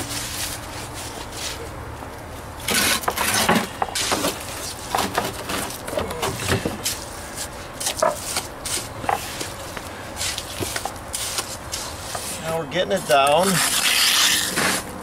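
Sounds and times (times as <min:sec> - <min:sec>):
trowel scraping wet mortar: 0:02.6 - 0:04.2, 0:10.2 - 0:15.0.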